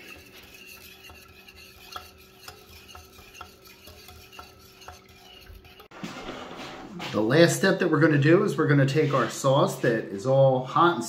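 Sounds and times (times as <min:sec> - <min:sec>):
whisk ticking against pot: 0:00.0 - 0:05.9.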